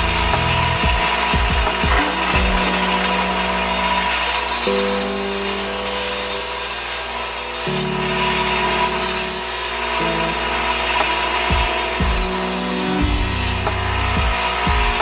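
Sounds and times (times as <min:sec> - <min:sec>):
background music: 0:00.0 - 0:06.0, 0:10.0 - 0:15.0
bench grinder grinding metal blade: 0:00.0 - 0:15.0.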